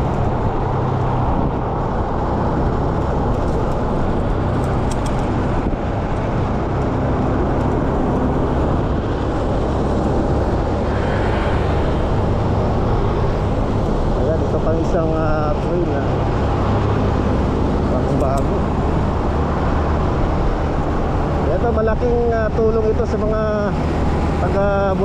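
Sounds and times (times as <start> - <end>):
road noise: 0.0 - 25.0
wind rush: 0.0 - 25.0.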